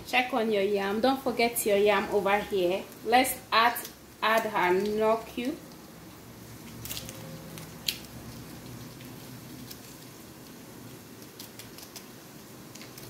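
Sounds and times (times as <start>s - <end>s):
foil wrapper crinkling: 3.6s - 13.0s.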